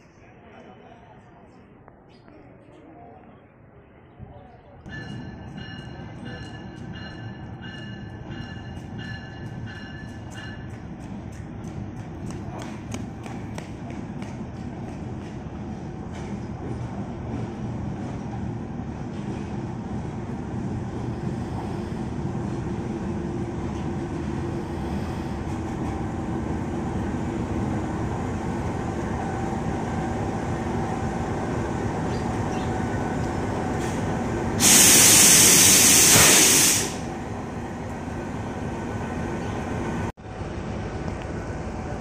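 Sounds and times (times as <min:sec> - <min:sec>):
diesel locomotive engine drone: 0:04.9 - 0:42.0
air hiss: 0:34.6 - 0:37.1.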